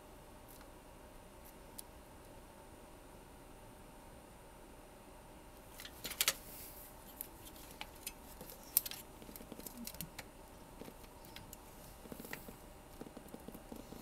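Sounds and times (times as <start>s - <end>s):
circuit board clicking and rattling: 5.8s - 6.4s, 7.6s - 13.9s.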